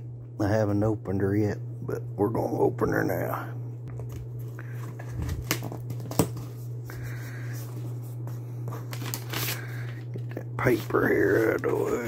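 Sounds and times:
steady low hum: 0.0 - 12.0
cardboard flaps scraping and rustling: 4.7 - 6.6.

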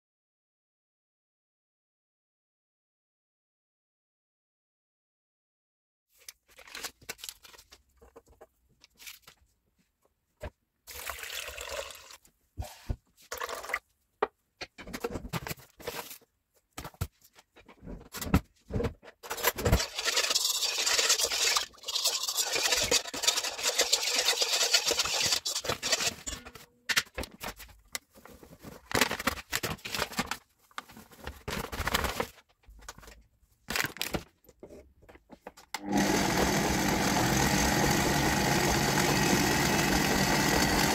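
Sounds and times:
metal spoon scraping metal bowl: 19.3 - 26.6.

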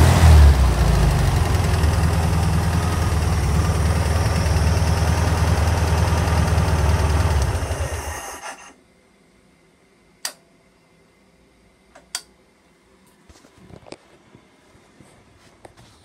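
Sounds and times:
car engine running down: 0.0 - 8.4.

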